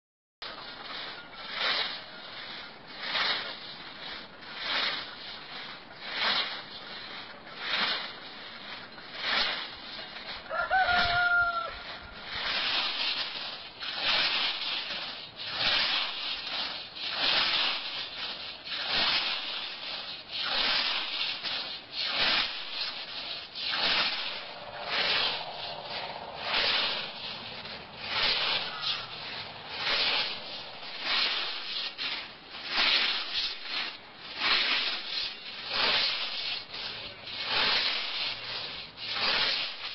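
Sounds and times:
scythe swishing through grass: 0.4s - 39.9s
chicken call: 10.5s - 12.0s.

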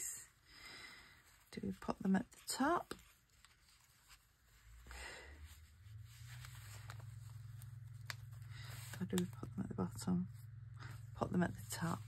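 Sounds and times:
low steady hum: 0.0s - 12.0s
paper rustling: 1.8s - 4.8s, 5.9s - 9.5s.

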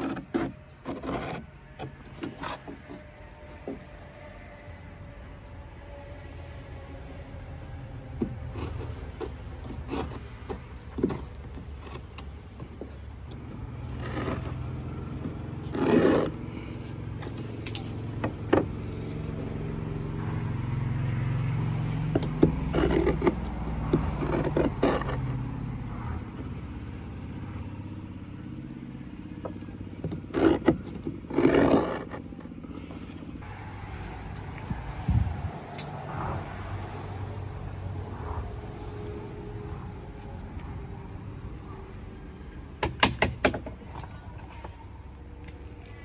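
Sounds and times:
wooden stick scraping wooden planks: 0.0s - 4.0s, 8.2s - 19.3s, 22.0s - 26.6s, 29.4s - 33.5s
low engine hum: 0.0s - 46.0s.

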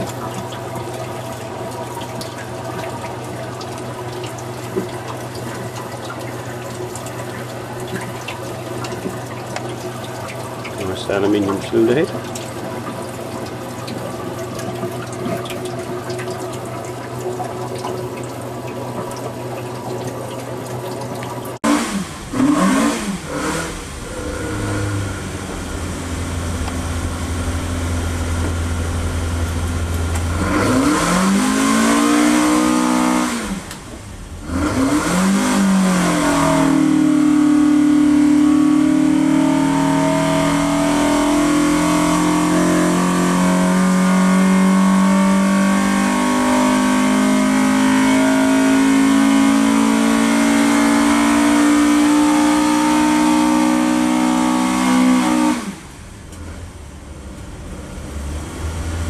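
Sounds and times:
car engine revving on dyno: 21.6s - 59.0s.

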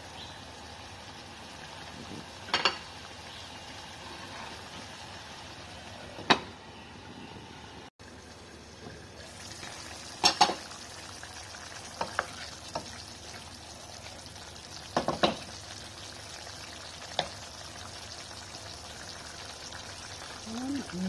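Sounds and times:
meat sizzling in a saucepan: 8.0s - 21.0s.

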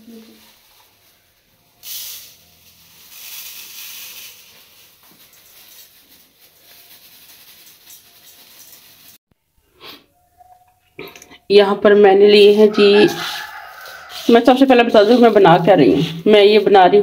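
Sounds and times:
plastic bag rustling: 0.0s - 9.2s, 12.8s - 17.0s
rice pouring into steel bowl: 1.8s - 9.2s.

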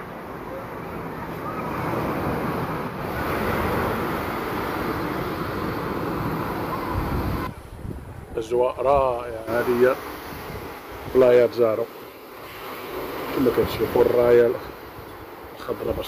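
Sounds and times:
sea surf rushing: 0.0s - 16.0s
wind on microphone: 1.4s - 11.4s.

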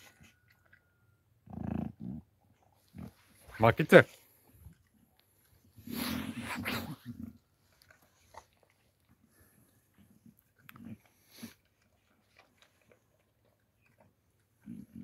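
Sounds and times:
dog chewing: 7.0s - 15.0s.

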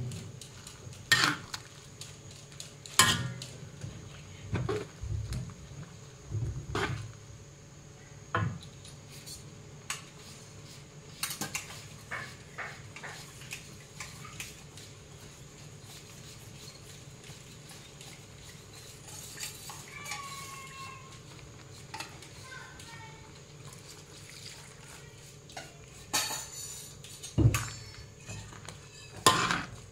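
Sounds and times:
gravy simmering: 0.0s - 29.9s
metal spatula scraping wok: 1.0s - 1.6s, 15.8s - 22.5s, 25.6s - 29.9s.

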